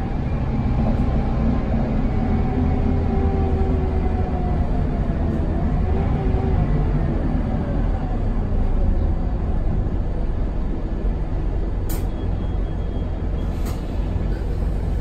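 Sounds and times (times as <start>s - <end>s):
bus engine and road rumble: 0.0s - 15.0s
air brake hisses: 13.4s - 15.0s.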